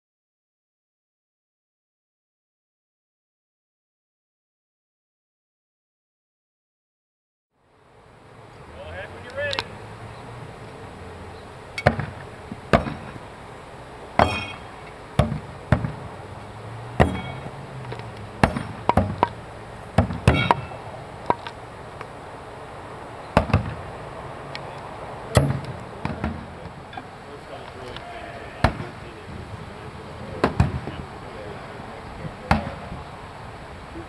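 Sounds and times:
thrown blades striking targets: 11.8s - 13.2s, 14.2s - 16.0s, 17.0s - 17.6s, 18.4s - 19.4s, 20.0s - 21.5s, 25.3s - 26.4s.

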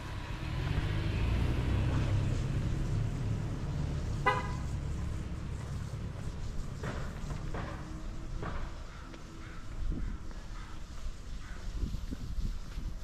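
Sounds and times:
vehicle engine rumble passing: 0.0s - 9.8s
car horn toot: 4.2s - 4.7s.

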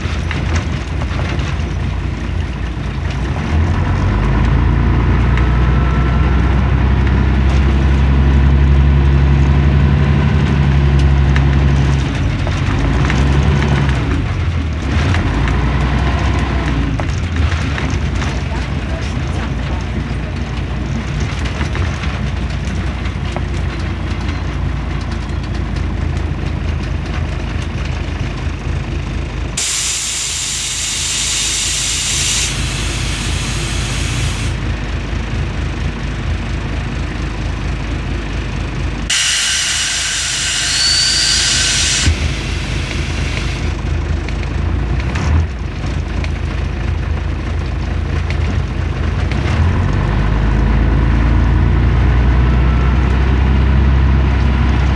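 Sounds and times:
bus diesel engine running: 0.0s - 54.9s
compressed air hiss: 29.6s - 34.6s, 39.1s - 43.7s.

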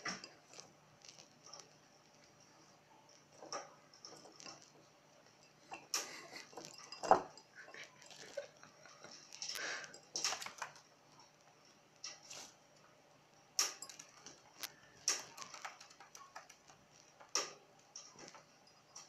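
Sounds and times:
bird claws and beaks tapping: 8.1s - 11.3s, 13.6s - 19.0s.

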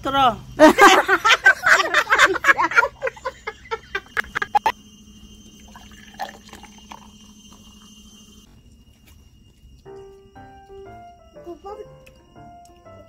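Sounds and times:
woman laughing loudly: 0.6s - 4.7s
soda pouring into glass: 5.1s - 8.4s.

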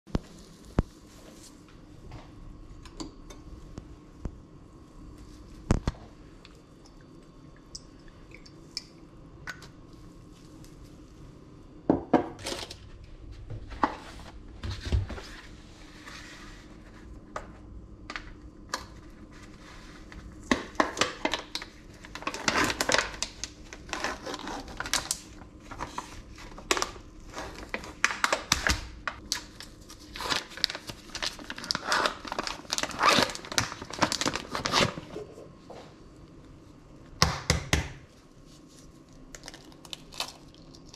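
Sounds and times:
plastic packaging crinkling and tearing: 20.5s - 35.1s.

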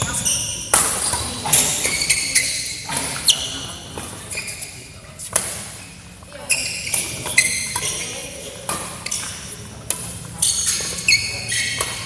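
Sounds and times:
rackets striking shuttlecock: 0.0s - 2.0s
shoes squeaking on court floor: 0.0s - 12.0s.

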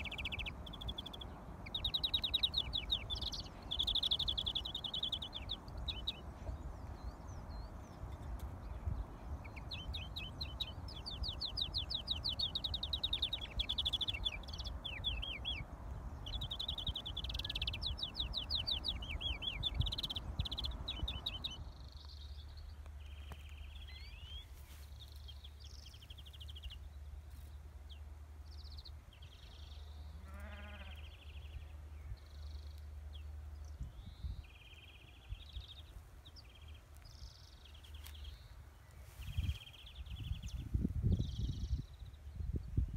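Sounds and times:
wind noise on microphone: 0.0s - 22.2s, 33.6s - 36.0s, 38.3s - 42.9s
finch singing trills: 0.0s - 42.9s.

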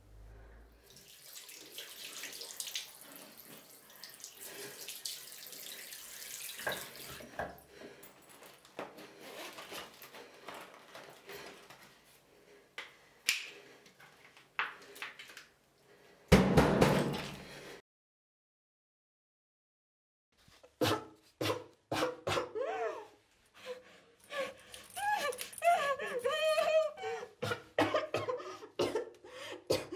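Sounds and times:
tap water running into sink: 0.9s - 7.6s.

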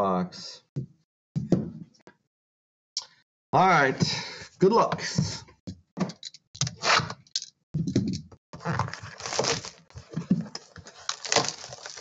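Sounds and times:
plastic shrink wrap crinkling: 8.6s - 12.0s.

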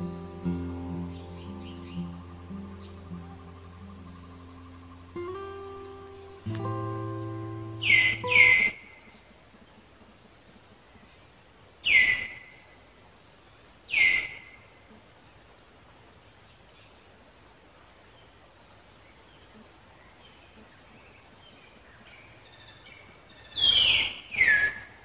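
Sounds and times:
faint outdoor background: 0.0s - 25.0s
sharp downward sweeping animal calls: 7.8s - 8.8s.

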